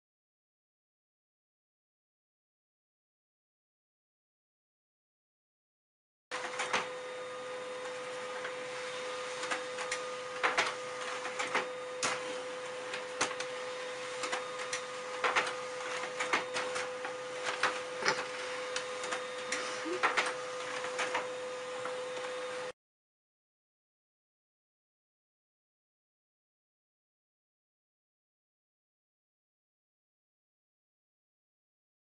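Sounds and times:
printer mechanical hum: 0:06.3 - 0:22.8
printer clicks as sheets feed: 0:06.4 - 0:06.9, 0:09.4 - 0:13.6, 0:14.2 - 0:21.3.

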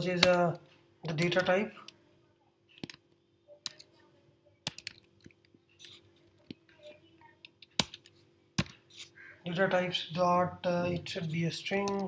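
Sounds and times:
faint steady hum: 0:00.0 - 0:12.0
keyboard keystrokes: 0:04.7 - 0:05.4.

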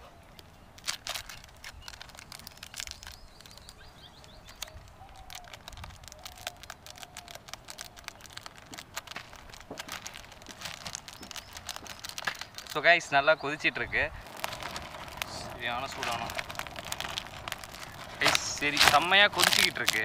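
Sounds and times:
faint bird chirps: 0:00.0 - 0:08.5, 0:11.0 - 0:14.2
campfire crackling and popping: 0:00.0 - 0:20.0.

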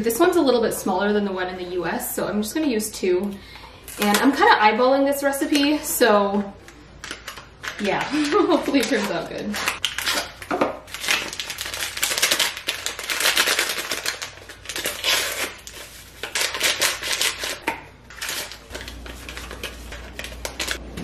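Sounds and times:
packet crinkling and tearing: 0:07.0 - 0:20.8.

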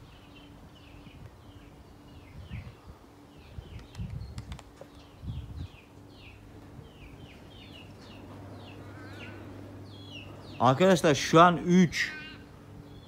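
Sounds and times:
small birds chirping: 0:00.0 - 0:13.0
low rumbles on microphone: 0:02.2 - 0:10.6.

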